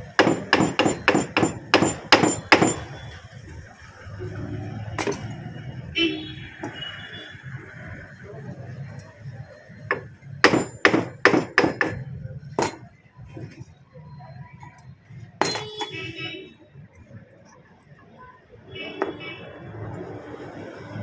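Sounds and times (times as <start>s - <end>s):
hammer striking metal casing: 0.0s - 3.0s, 9.9s - 12.0s.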